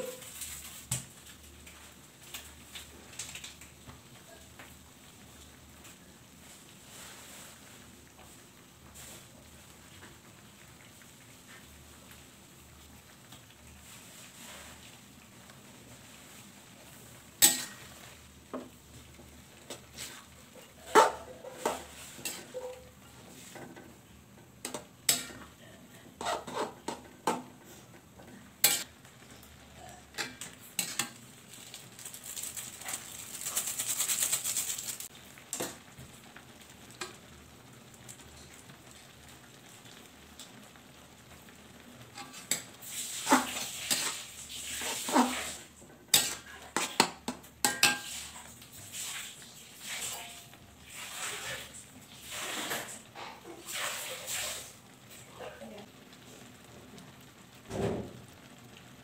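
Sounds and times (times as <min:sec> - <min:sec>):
food sizzling: 0:00.0 - 0:59.0
metal spatula scraping wok: 0:16.9 - 0:18.3, 0:19.6 - 0:23.8, 0:24.6 - 0:27.9, 0:28.6 - 0:35.8, 0:42.0 - 0:54.8.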